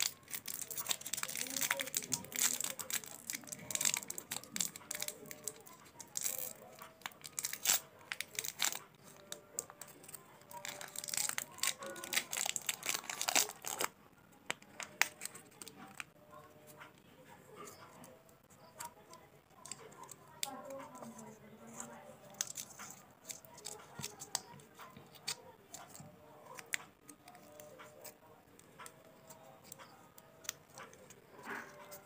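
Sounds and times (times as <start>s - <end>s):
foil wrappers crinkling: 0.0s - 14.0s.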